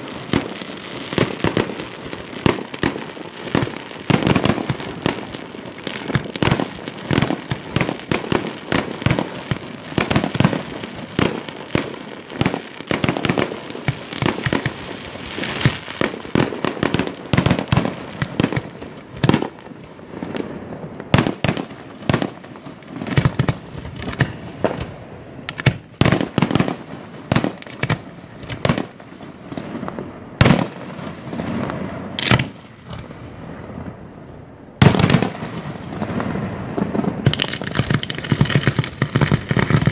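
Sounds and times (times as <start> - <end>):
fireworks bursting: 0.0 - 39.9.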